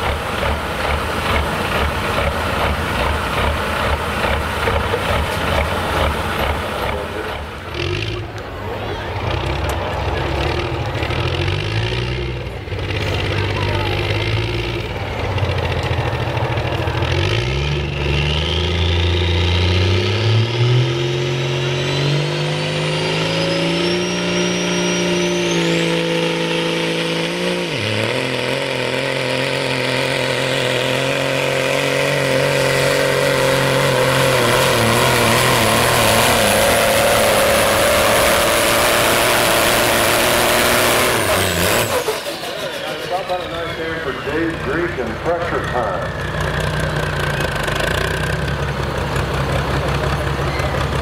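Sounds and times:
diesel truck engine revving: 0:00.0 - 0:51.0
high turbo whistle: 0:21.7 - 0:26.0.

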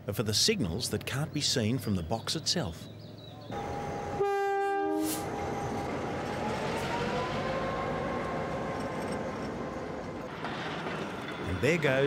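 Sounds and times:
diesel locomotive engine: 0:03.4 - 0:12.0
rumble of train moving: 0:03.6 - 0:12.0.

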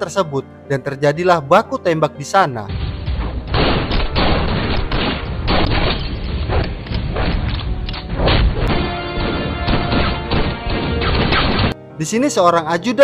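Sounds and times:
booming impacts: 0:02.7 - 0:11.8
rapid gunshots: 0:03.5 - 0:07.4, 0:08.2 - 0:11.8.

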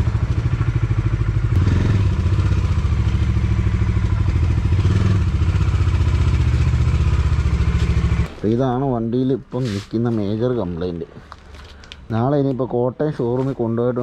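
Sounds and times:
motorcycle engine pulsing: 0:00.0 - 0:08.3.

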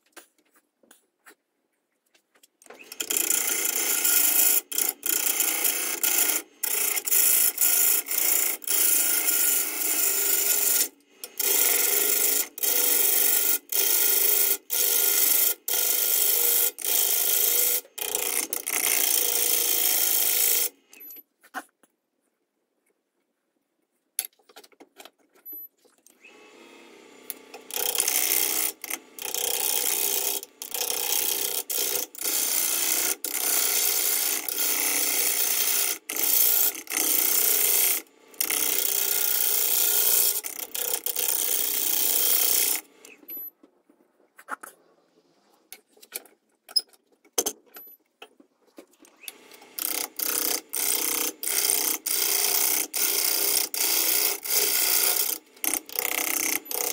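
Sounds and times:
lathe tool scraping wood: 0:02.7 - 0:20.9, 0:26.2 - 0:43.4, 0:49.0 - 0:56.9.

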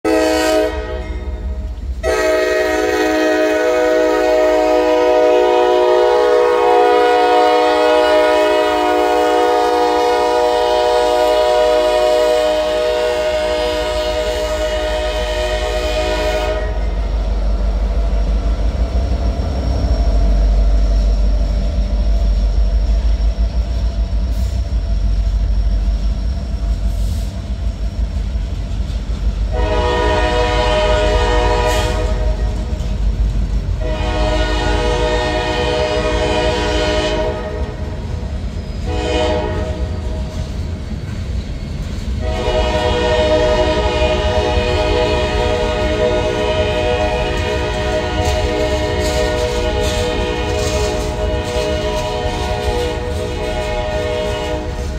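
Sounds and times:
locomotive horn: 0:00.0 - 0:17.1, 0:29.5 - 0:32.8, 0:33.8 - 0:38.2, 0:38.8 - 0:40.2, 0:42.2 - 0:54.9
freight train rumbling on rails: 0:00.0 - 0:54.9.

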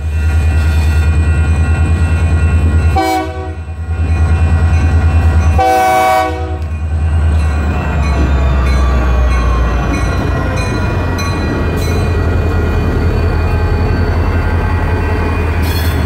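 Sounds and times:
crossing warning bells ringing: 0:00.0 - 0:16.0
locomotive air horn blast: 0:03.0 - 0:03.6, 0:05.6 - 0:06.6
locomotives rumbling: 0:06.5 - 0:16.0.

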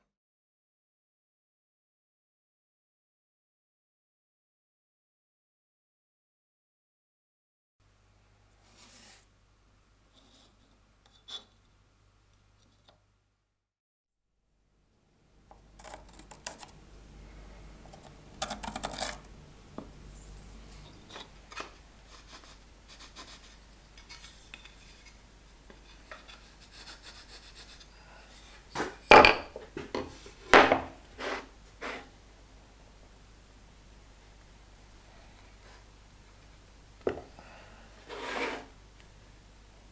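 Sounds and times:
metal scribe scraping wood: 0:20.8 - 0:29.2, 0:31.2 - 0:32.1, 0:38.0 - 0:38.7.

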